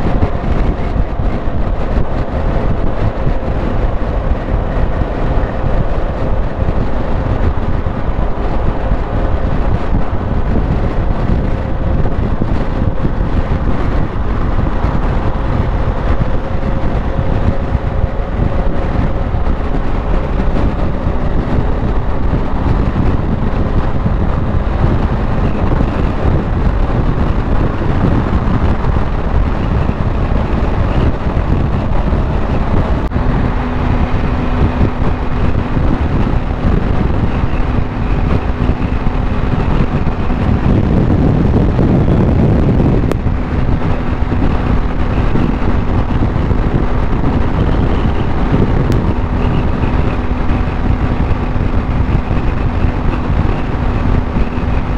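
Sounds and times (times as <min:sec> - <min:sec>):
motorcycle engine running: 0:00.0 - 0:54.9
wind rushing over microphone: 0:00.0 - 0:54.9.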